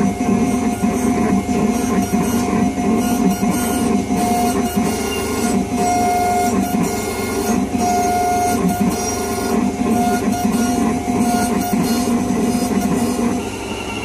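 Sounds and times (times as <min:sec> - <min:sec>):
milling machine grinding whir: 0:00.0 - 0:14.0.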